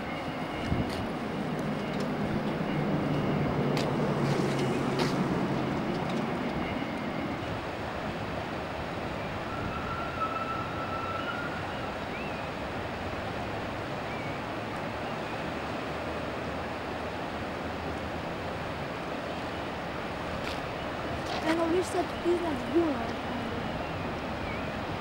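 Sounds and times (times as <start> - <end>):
river water rushing: 0.0 - 25.0
faint high whistle-like tone: 9.4 - 12.5.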